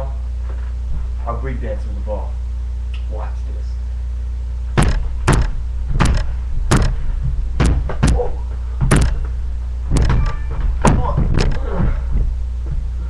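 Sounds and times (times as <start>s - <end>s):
low electrical hum: 0.0s - 13.0s
basketball bouncing on floor: 4.8s - 8.2s, 8.8s - 9.3s, 9.9s - 12.9s.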